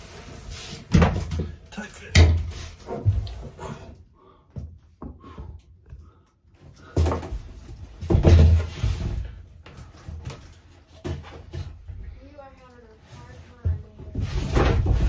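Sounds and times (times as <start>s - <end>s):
ceiling panel thumping and scraping: 6.8s - 12.2s, 13.0s - 15.0s.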